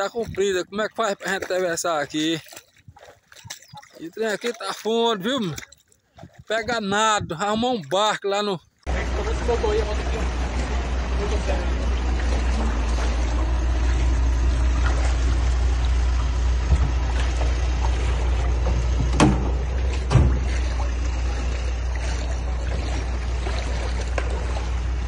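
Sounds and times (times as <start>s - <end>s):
low rumble: 8.9s - 25.0s
sharp knocks on aluminium boat: 16.6s - 20.9s.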